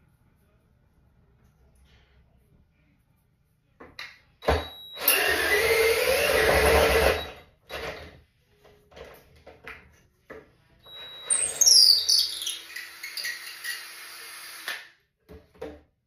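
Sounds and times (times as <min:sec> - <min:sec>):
cordless drill driving screw: 0:05.0 - 0:07.4, 0:10.9 - 0:14.9.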